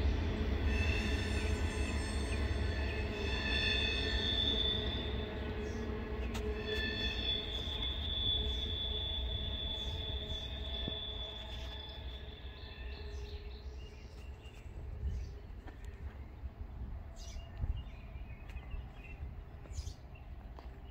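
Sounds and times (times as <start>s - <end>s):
train wheels squealing: 0.0s - 14.4s
train low rumble: 0.0s - 20.9s.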